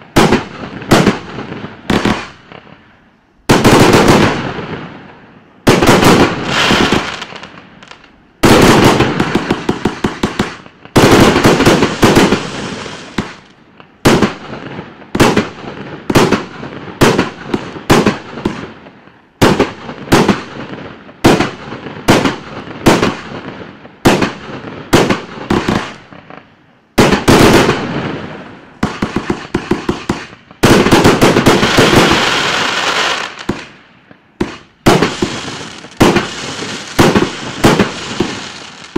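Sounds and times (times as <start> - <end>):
firework bangs: 0.0 - 38.9
firework crackling: 0.0 - 38.9.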